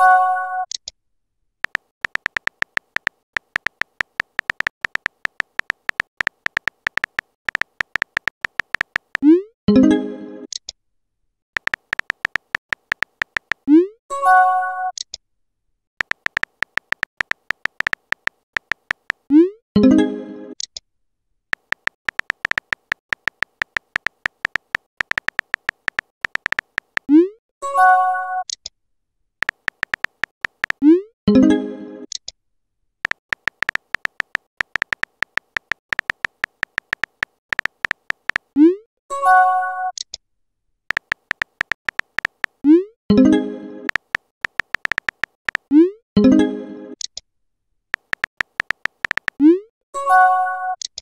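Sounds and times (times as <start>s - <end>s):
keyboard typing clicks: 1.6s - 9.4s, 11.6s - 13.7s, 16.0s - 19.3s, 21.6s - 27.2s, 29.4s - 31.0s, 33.0s - 38.6s, 40.9s - 43.3s, 43.9s - 45.8s, 48.0s - 49.5s.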